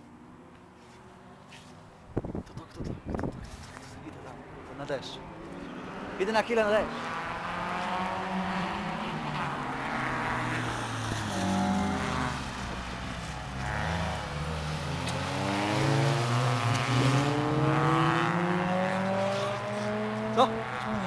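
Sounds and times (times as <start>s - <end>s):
race car engines: 0.0s - 21.0s
car accelerating through gears: 5.3s - 21.0s.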